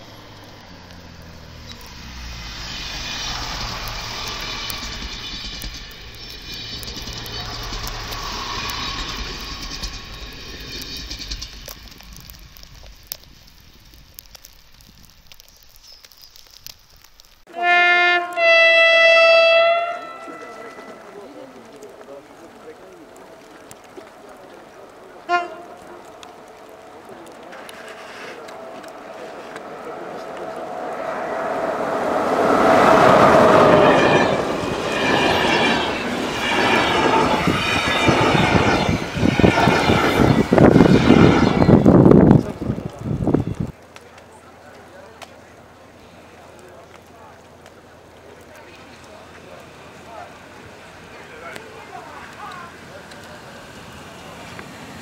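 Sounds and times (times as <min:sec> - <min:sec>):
electric locomotive whine: 0:00.0 - 0:15.4, 0:17.5 - 0:55.0
train wheels clacking over rail joints: 0:01.6 - 0:13.2
train horn blast: 0:17.5 - 0:21.2, 0:25.2 - 0:27.0, 0:30.5 - 0:36.6.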